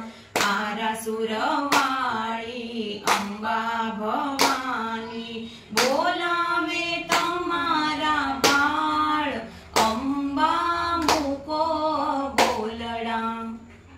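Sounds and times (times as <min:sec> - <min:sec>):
women and girl singing in unison: 0:00.0 - 0:13.9
hand claps: 0:00.3 - 0:00.8, 0:01.6 - 0:02.1, 0:03.0 - 0:03.5, 0:04.2 - 0:04.9, 0:05.7 - 0:06.2, 0:07.0 - 0:07.5, 0:08.4 - 0:08.8, 0:09.7 - 0:10.1, 0:11.0 - 0:11.4, 0:12.3 - 0:12.8.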